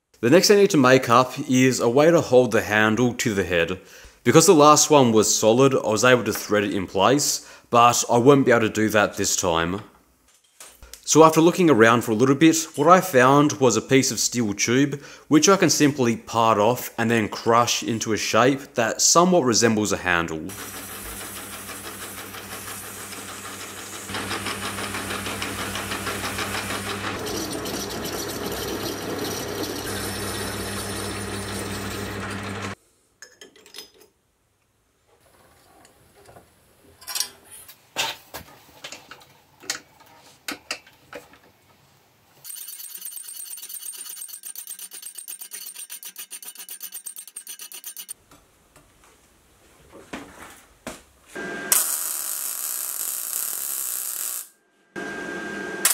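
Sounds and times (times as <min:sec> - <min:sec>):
metal lathe running: 0:20.5 - 0:32.8
steel parts clanking in vise: 0:42.5 - 0:48.2.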